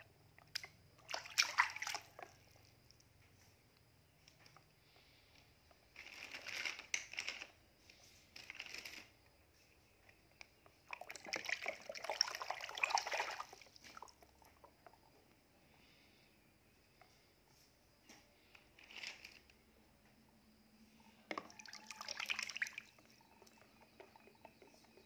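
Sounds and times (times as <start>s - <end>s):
water splashing in plastic basin: 0.4s - 2.8s, 10.8s - 14.7s, 21.3s - 25.0s.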